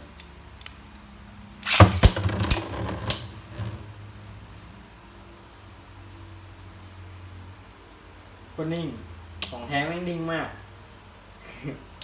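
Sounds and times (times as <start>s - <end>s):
spinning top launch: 1.6s - 3.8s
spinning tops clacking: 1.6s - 3.8s.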